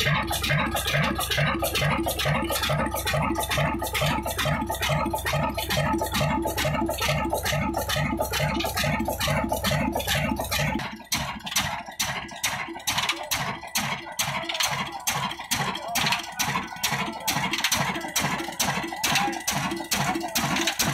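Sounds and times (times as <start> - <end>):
deep low hum: 0.0 - 12.0
diesel engine slow beat: 0.0 - 20.9.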